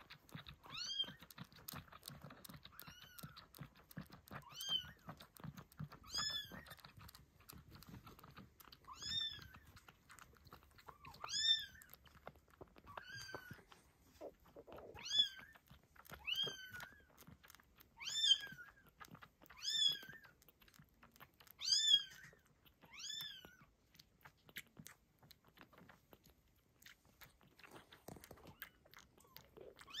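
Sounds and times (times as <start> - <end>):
soft suckling clicks: 0.0 - 30.0.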